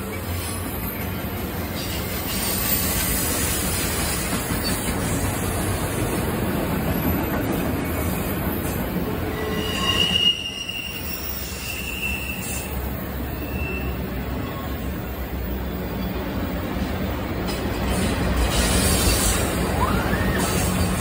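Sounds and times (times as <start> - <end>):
freight train wheels rumbling on rail: 0.0 - 21.0
high wheel squeal: 9.3 - 15.3, 18.5 - 21.0.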